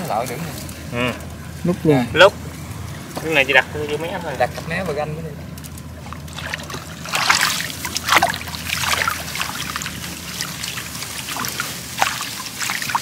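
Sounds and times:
legs wading through water: 0:05.9 - 0:13.0.

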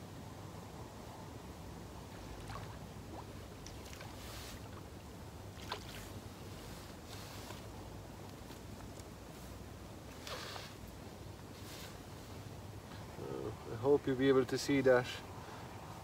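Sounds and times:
fish splashing in water: 0:05.5 - 0:06.2.

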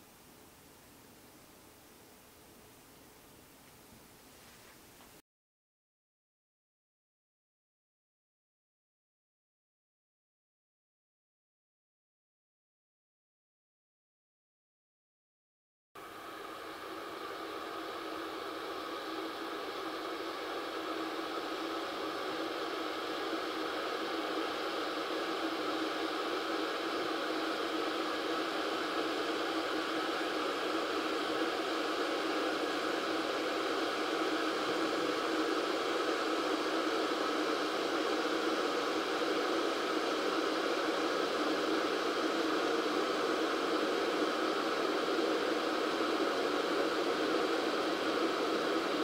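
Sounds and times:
electric kettle heating water: 0:16.0 - 0:49.0.

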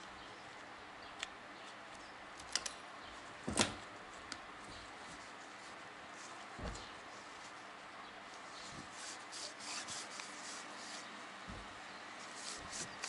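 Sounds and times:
dull thump: 0:06.6 - 0:07.0, 0:11.4 - 0:11.8.

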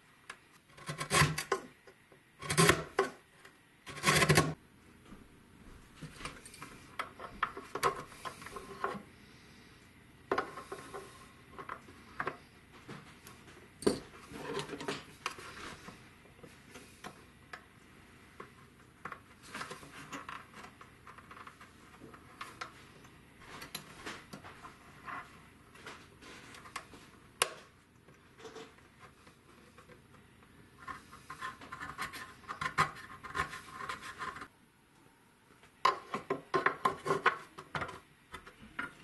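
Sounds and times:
chisel scraping wood: 0:00.8 - 0:01.6, 0:02.4 - 0:03.2, 0:03.9 - 0:04.6.

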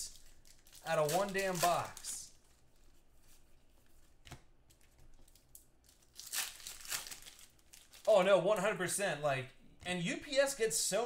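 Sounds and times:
wrapper tearing and crinkling: 0:00.1 - 0:02.6, 0:04.8 - 0:08.2.

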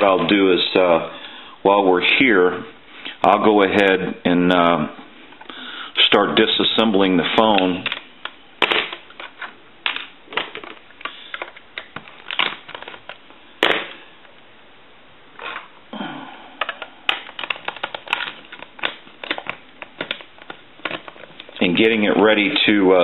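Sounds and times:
plastic parts clicking and knocking: 0:07.5 - 0:14.0, 0:16.6 - 0:21.6.

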